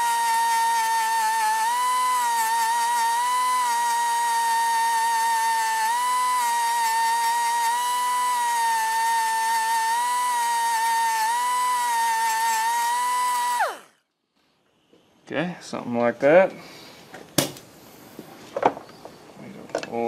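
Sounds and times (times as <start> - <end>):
grinder whining on metal: 0.0 - 14.0.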